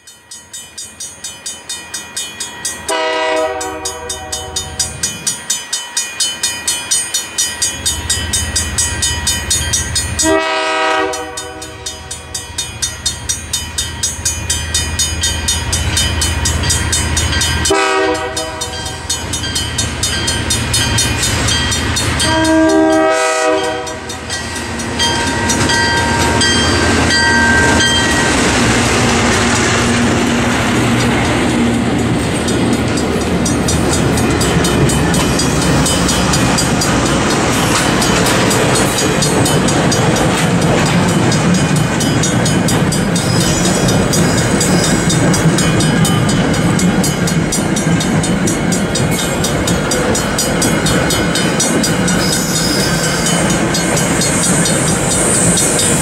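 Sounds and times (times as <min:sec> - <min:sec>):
crossing signal bell ringing: 0:00.0 - 0:56.0
locomotive horn: 0:02.9 - 0:04.8, 0:10.2 - 0:12.4, 0:17.6 - 0:19.1, 0:22.2 - 0:24.2.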